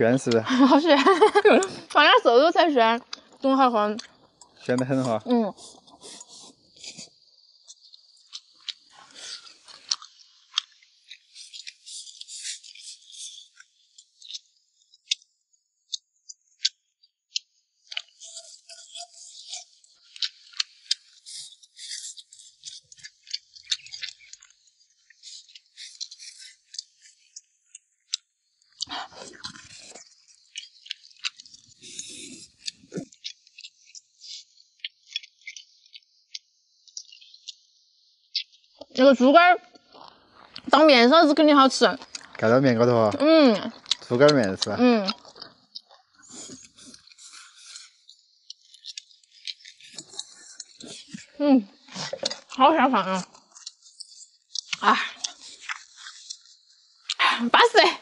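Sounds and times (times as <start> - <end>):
people chewing: 0.0 - 15.3, 15.9 - 37.6, 38.3 - 58.0
chopsticks clicking against bowls: 43.7 - 45.5.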